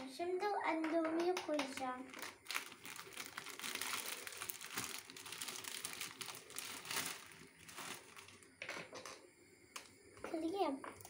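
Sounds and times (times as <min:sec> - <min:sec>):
plastic wrapper crinkling: 0:01.5 - 0:08.5.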